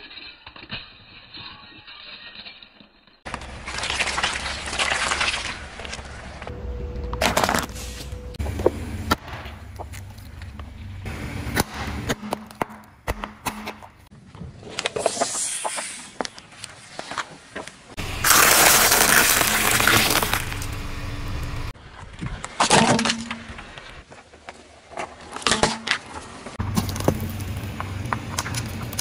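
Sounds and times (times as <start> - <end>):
car tyre crushing objects: 3.3 - 10.7, 17.0 - 29.0.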